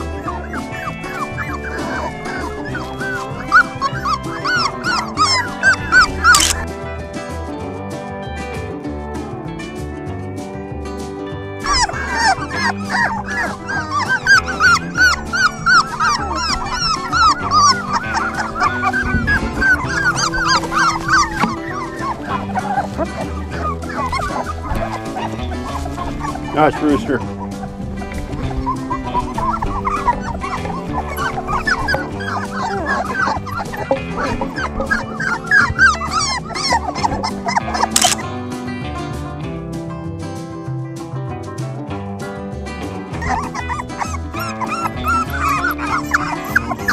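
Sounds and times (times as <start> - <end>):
puppy whimpering and yipping: 0.0 - 6.7, 11.6 - 38.2, 43.2 - 46.9
background music: 0.0 - 46.9.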